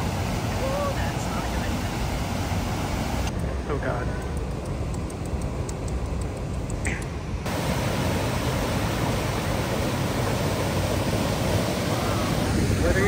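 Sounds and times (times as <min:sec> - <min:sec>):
waterfall rushing: 0:00.0 - 0:03.3, 0:07.5 - 0:13.0.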